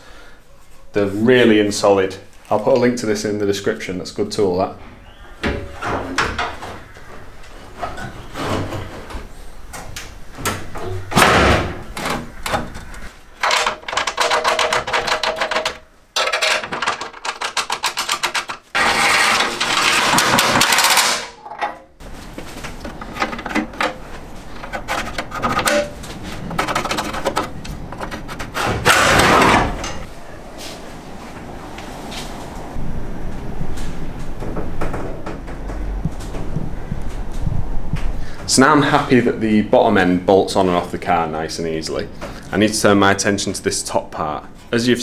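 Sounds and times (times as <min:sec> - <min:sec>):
metal clanks and knocks: 0:05.4 - 0:30.1
rattling power tool: 0:13.4 - 0:21.3.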